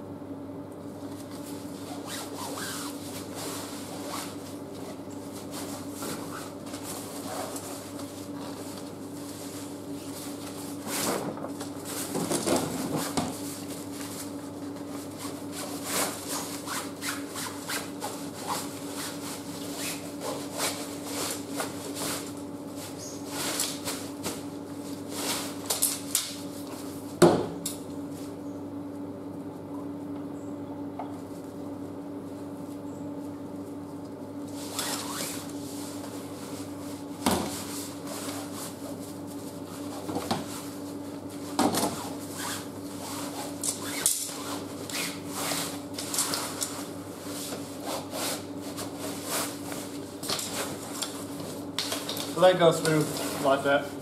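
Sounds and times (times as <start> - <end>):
canvas fabric rustling and scraping: 1.2 - 25.7, 34.5 - 51.7.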